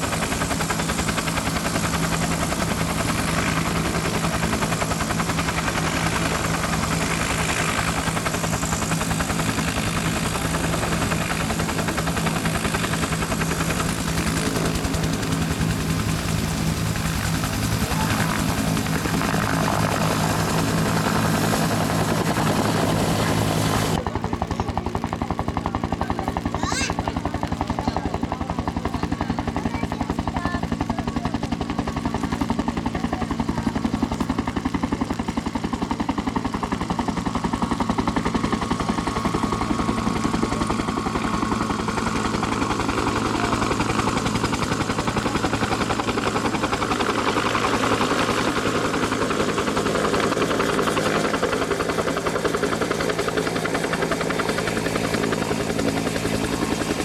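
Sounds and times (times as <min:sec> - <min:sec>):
helicopter rotor and turbine: 0:00.0 - 0:57.0.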